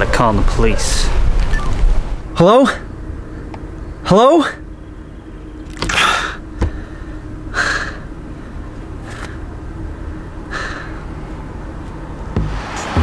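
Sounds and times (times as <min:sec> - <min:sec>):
low hum inside car: 0:00.0 - 0:13.0
man breathing hard: 0:06.0 - 0:08.7, 0:09.4 - 0:11.2.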